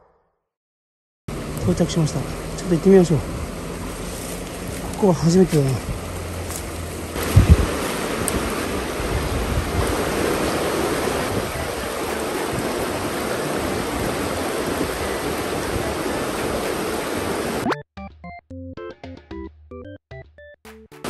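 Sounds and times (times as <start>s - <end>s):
river water rushing over rocks: 6.3s - 17.6s
background music of repeated notes: 17.6s - 21.0s.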